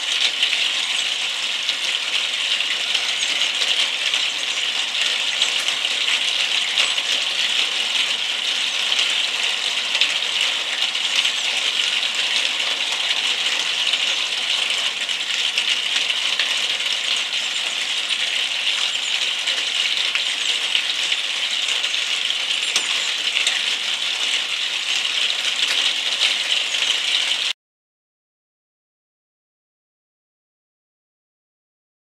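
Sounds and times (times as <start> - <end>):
rain pattering: 0.0 - 27.6.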